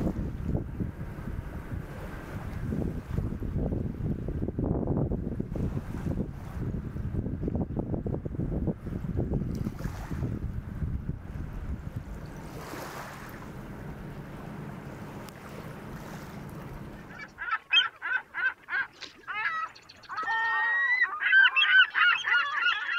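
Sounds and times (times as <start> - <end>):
wind buffeting microphone: 0.0 - 17.4
geese honking: 16.6 - 22.9.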